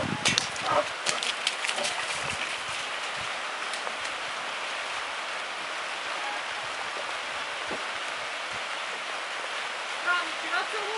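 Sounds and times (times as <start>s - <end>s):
steady rain falling: 0.0s - 10.9s
raindrops ticking: 0.2s - 4.4s.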